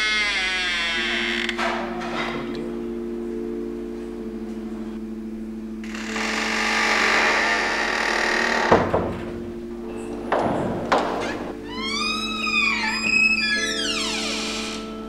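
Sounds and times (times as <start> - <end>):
sharp knocks: 10.3 - 11.5.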